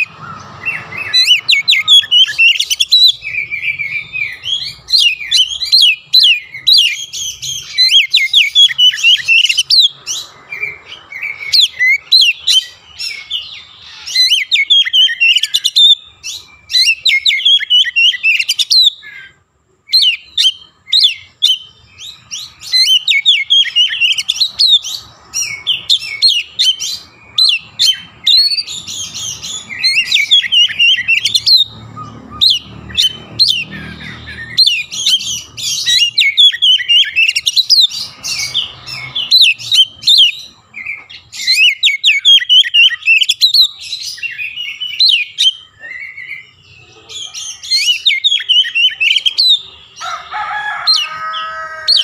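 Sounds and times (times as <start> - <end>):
bird singing whistles and chirps: 0.0 - 50.2.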